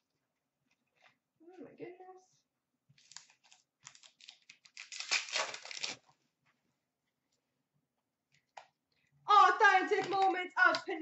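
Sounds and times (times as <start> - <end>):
card pack wrapper tearing: 3.0 - 6.0.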